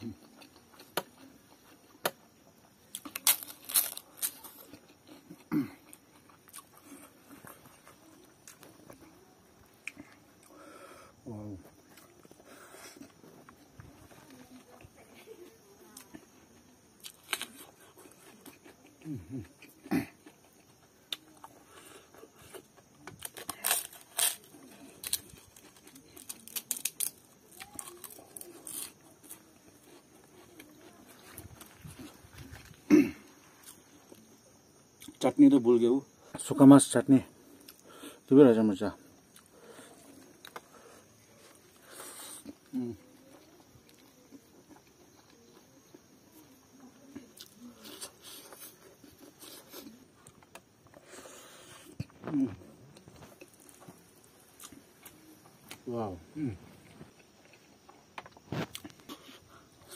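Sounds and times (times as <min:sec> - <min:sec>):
fried papad cracking and crunching: 0:00.0 - 0:09.1, 0:17.0 - 0:32.8
chewing: 0:00.0 - 0:10.7, 0:11.6 - 0:34.4, 0:39.1 - 0:55.8, 0:56.7 - 0:59.9
crisp papad crunching: 0:03.0 - 0:04.8.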